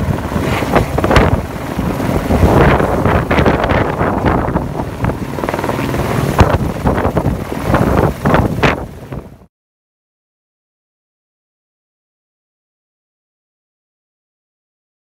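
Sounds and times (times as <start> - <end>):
helicopter rotor noise: 0.0 - 9.5.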